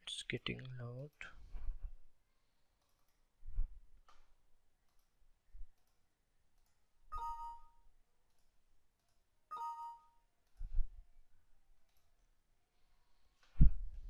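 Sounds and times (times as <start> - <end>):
computer system chime: 7.2 - 7.8, 9.5 - 10.2.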